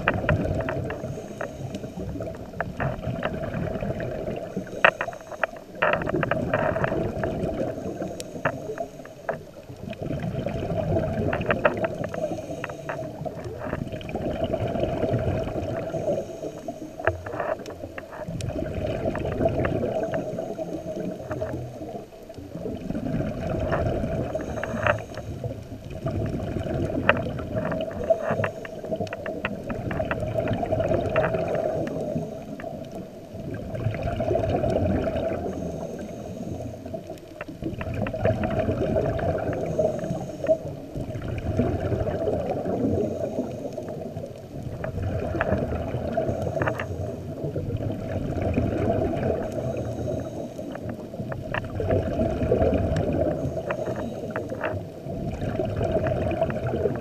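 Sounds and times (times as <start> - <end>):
scuba regulator breathing underwater: 0.0 - 5.8, 6.4 - 9.4, 10.0 - 17.6, 22.9 - 29.0, 34.0 - 37.2, 38.1 - 44.2, 44.9 - 51.0, 52.0 - 54.7
rush of bubbles with crackling pops: 0.0 - 57.0.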